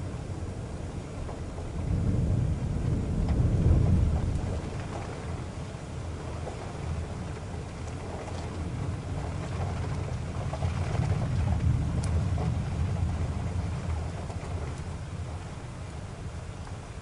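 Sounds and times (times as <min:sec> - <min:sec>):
car engine and road rumble: 0:00.0 - 0:17.0
rain hissing: 0:00.0 - 0:17.0
faint ticks: 0:03.2 - 0:03.5, 0:09.5 - 0:12.5, 0:14.0 - 0:14.9.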